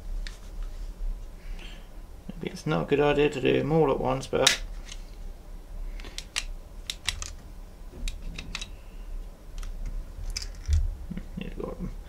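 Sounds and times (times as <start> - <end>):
cable handling: 6.0 - 7.4, 8.0 - 8.8, 9.5 - 10.9.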